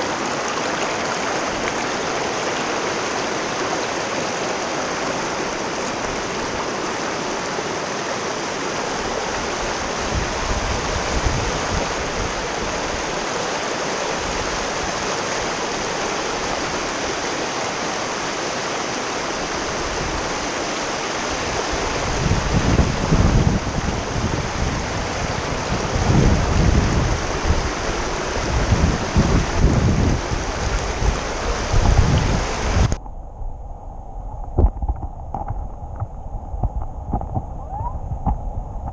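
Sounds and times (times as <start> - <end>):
river rapids rushing over rocks: 0.0 - 33.0
wind buffeting microphone: 9.0 - 13.2, 21.3 - 38.9.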